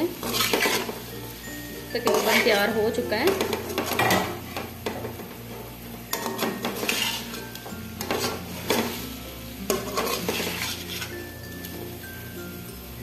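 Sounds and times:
metal spatula scraping a pot: 0.0 - 1.1, 2.0 - 5.2, 6.1 - 11.4
chicken sizzling in oil: 0.0 - 13.0.

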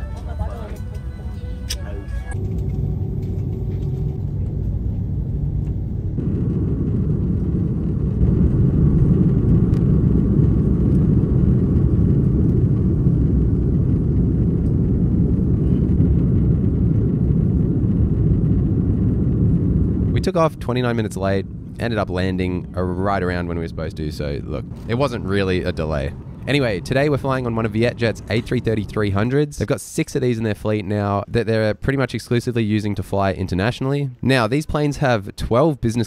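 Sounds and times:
jet engines rumbling in cabin: 0.0 - 31.1.

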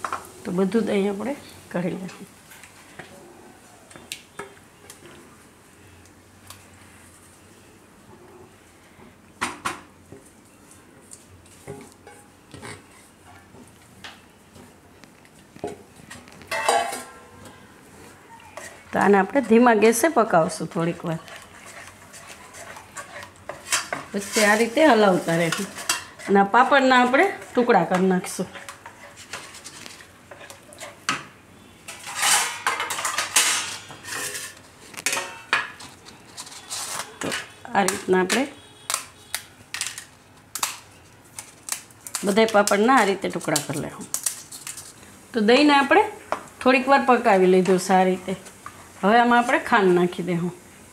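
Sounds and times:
spatula scraping steel bowl: 18.6 - 20.0, 20.9 - 31.1, 31.9 - 34.6
papad crackling onto steel plate: 38.8 - 44.9.

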